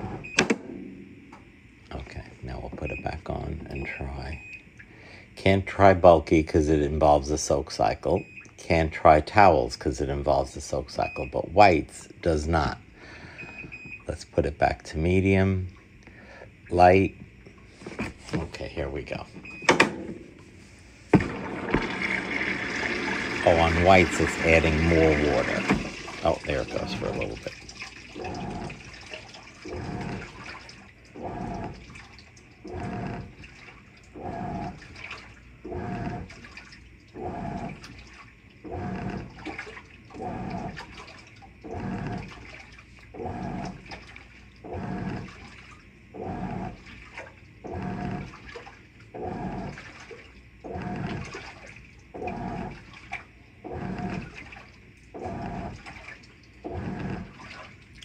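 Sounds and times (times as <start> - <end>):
washer motor humming: 0.0 - 58.0
water and clothes sloshing: 16.7 - 58.0.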